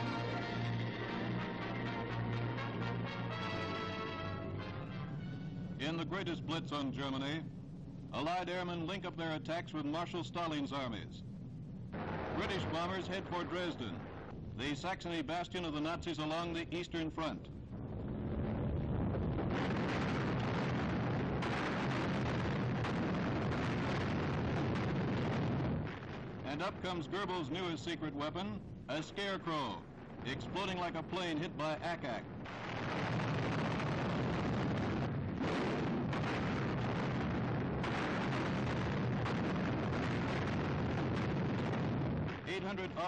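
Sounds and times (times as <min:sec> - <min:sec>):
anti-aircraft fire: 0:11.8 - 0:43.0
explosions and gunfire: 0:11.9 - 0:14.3, 0:17.8 - 0:27.4, 0:29.6 - 0:43.0.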